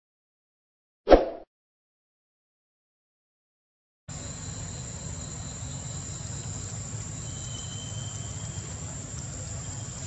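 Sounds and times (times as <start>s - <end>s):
insects droning: 4.1s - 10.0s.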